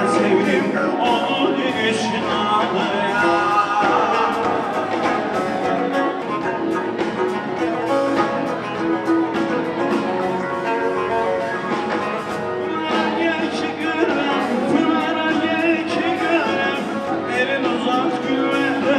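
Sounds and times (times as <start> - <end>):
person singing into a microphone: 0.0 - 6.4, 12.5 - 18.9
guitar: 0.0 - 18.9
keyboard: 0.0 - 18.9.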